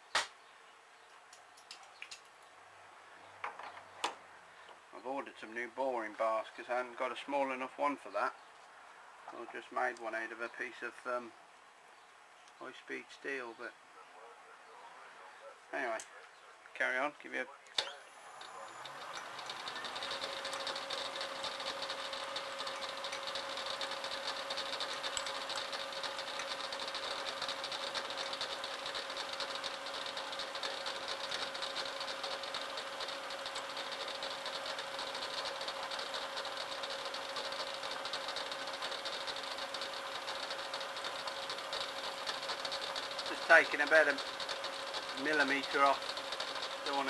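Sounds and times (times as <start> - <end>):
metal lathe humming: 18.0 - 47.0.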